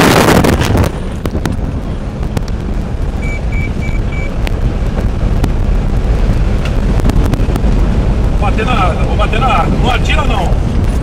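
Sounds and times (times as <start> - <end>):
vehicle rumbling on dirt road: 0.0 - 11.0
short high beeps: 3.2 - 4.4.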